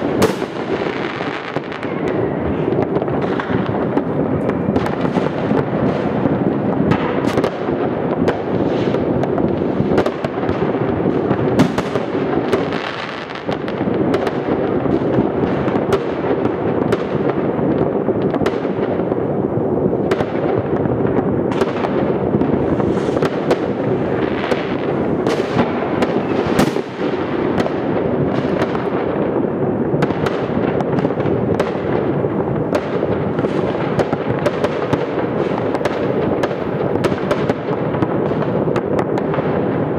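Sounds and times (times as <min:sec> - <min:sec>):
sharp single firework bangs: 0:00.0 - 0:06.3, 0:21.5 - 0:27.7
fireworks bangs and crackling: 0:00.0 - 0:39.9.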